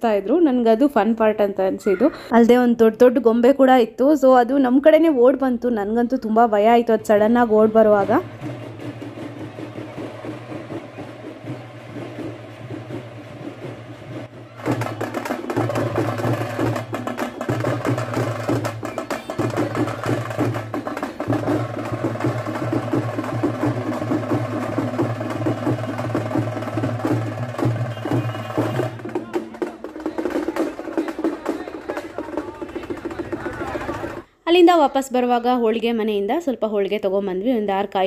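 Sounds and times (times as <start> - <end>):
procession drums beaten fast: 6.6 - 34.3.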